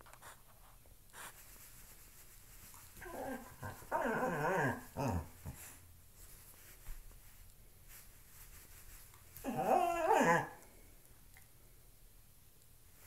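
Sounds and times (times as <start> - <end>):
dog whining: 3.0 - 5.4, 9.4 - 10.6.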